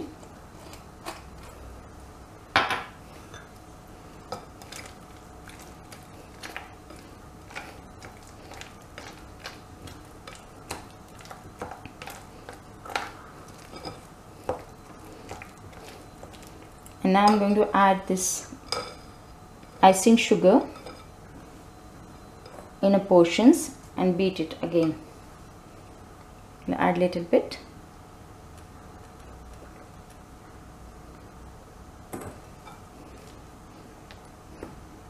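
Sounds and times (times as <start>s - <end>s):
spatula stirring frosting: 4.4s - 17.6s.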